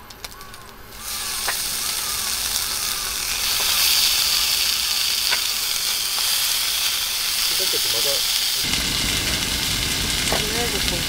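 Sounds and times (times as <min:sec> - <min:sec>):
food sizzling in a frying pan: 0:00.3 - 0:11.0.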